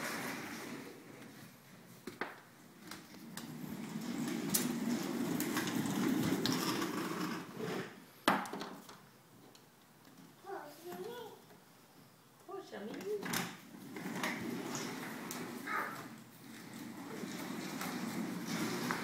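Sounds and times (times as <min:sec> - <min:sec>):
toy stroller wheels rolling on wood: 0:02.1 - 0:08.0, 0:12.8 - 0:19.0.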